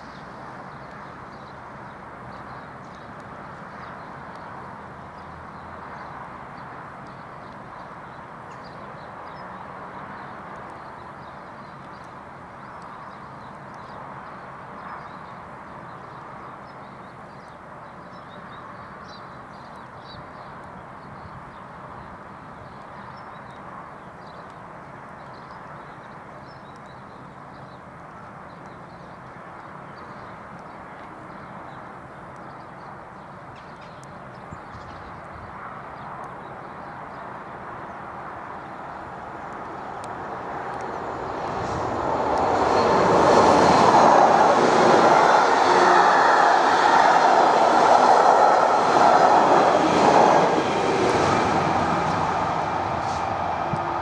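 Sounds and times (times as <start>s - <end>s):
birds chirping: 39.7s - 54.0s.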